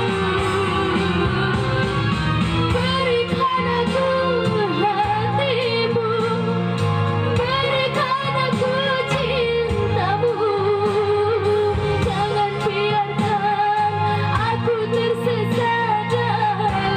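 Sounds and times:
pop backing track: 0.0 - 16.9
young woman singing: 0.0 - 16.9.

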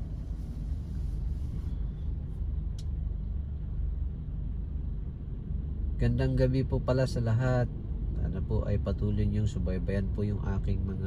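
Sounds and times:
faint click: 2.7 - 3.0.

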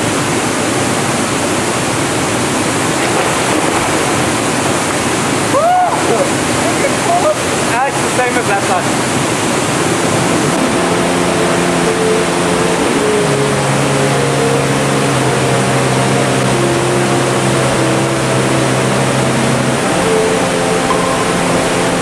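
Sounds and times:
waterfall roaring: 0.0 - 22.0
low sustained tones: 10.3 - 22.0.

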